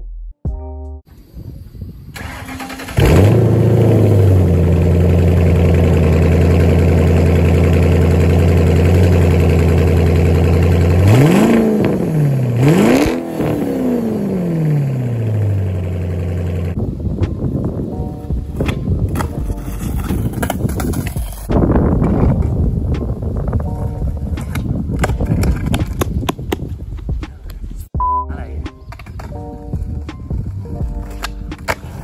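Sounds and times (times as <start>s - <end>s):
car engine starting and idling: 2.1s - 16.8s
car engine revving: 2.2s - 16.8s.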